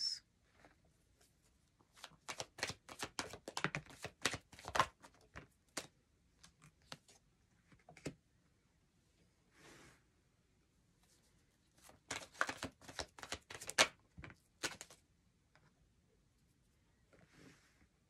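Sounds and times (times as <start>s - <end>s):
cards shuffling: 1.9s - 5.9s, 11.8s - 15.0s.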